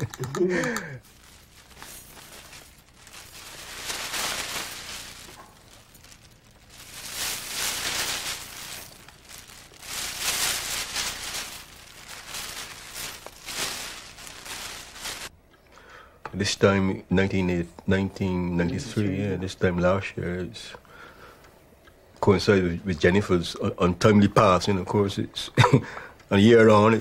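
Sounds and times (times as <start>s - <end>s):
plastic bag rustling and crinkling: 1.0s - 15.3s.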